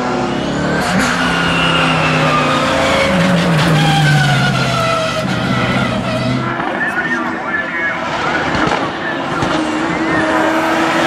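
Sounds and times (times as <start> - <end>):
race car engine running hard: 0.0 - 11.0
tyres squealing: 0.8 - 6.6.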